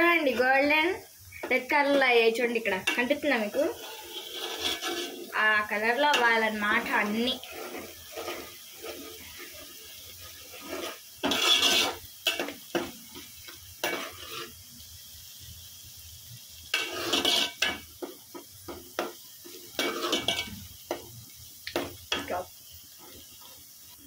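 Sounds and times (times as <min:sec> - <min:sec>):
onions frying in oil: 0:00.0 - 0:24.0
spoon scraping metal pot: 0:02.8 - 0:05.4, 0:06.0 - 0:09.7, 0:10.4 - 0:12.5, 0:13.8 - 0:14.5, 0:16.7 - 0:17.8, 0:19.8 - 0:20.6.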